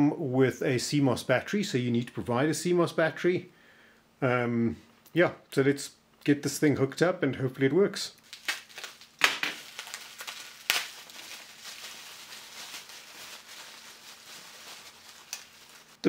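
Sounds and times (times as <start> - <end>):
bubble wrap crinkling: 8.2 - 16.0
sharp plastic crackles: 8.2 - 16.0.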